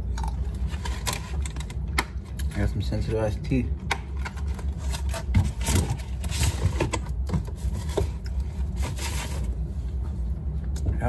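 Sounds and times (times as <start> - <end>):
steady low hum: 0.0 - 11.0
scraping and rustling handling noise: 4.1 - 10.4.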